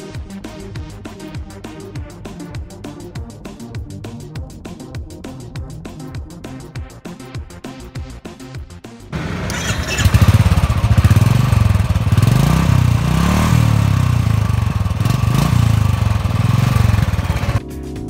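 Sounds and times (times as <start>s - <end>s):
motorcycle engine revving: 9.2s - 17.6s.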